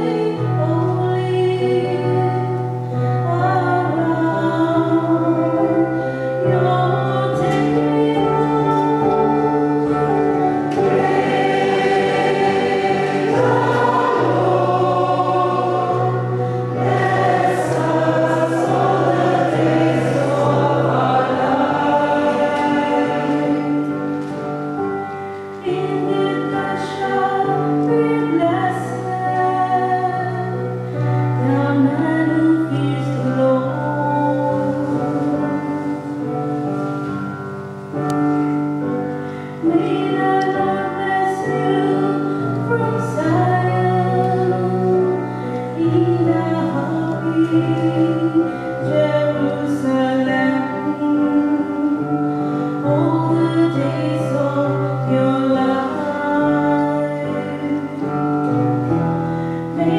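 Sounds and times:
choir singing a hymn: 3.2 - 30.6, 39.6 - 58.0, 59.7 - 59.9.

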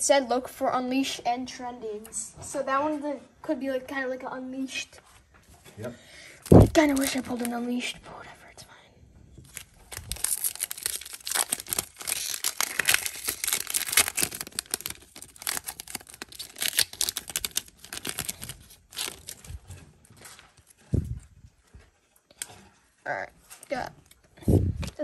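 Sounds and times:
wrapper crinkling and tearing: 6.4 - 7.7, 9.4 - 20.8.

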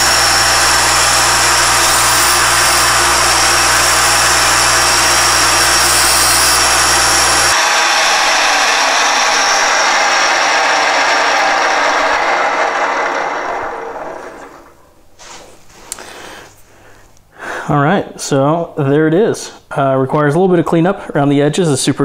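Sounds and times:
end mill cutting metal: 0.0 - 14.8
milling machine spindle running: 0.0 - 14.8
low hum: 0.0 - 15.1.

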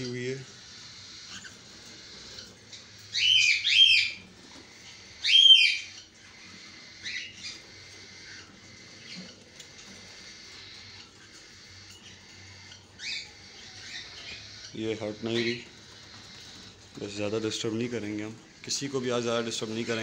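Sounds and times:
cockatiels calling: 0.0 - 20.0.

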